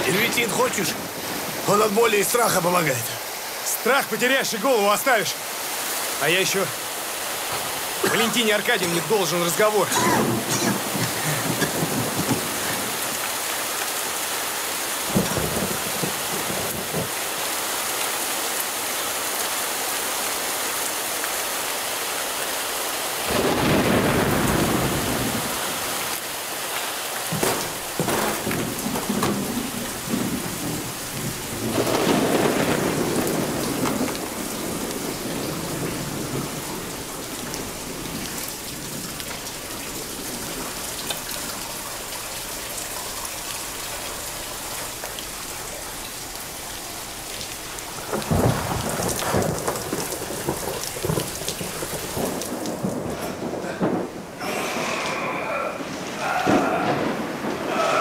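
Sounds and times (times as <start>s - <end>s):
heavy rain pouring: 0.0s - 58.0s
rolls of thunder: 10.0s - 13.1s, 15.1s - 17.1s, 23.3s - 25.6s, 27.3s - 39.2s, 48.1s - 58.0s.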